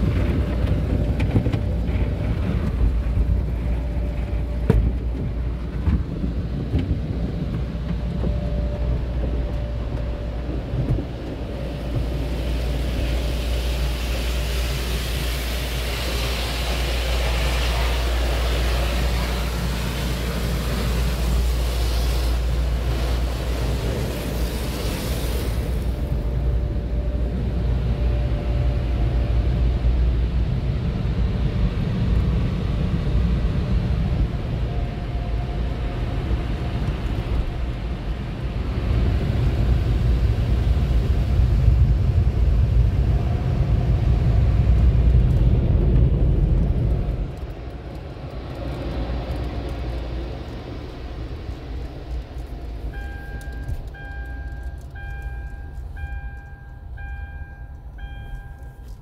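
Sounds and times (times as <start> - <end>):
low rumble and rush in car: 0.0 - 59.0
two-tone dashboard warning chime: 52.9 - 59.0.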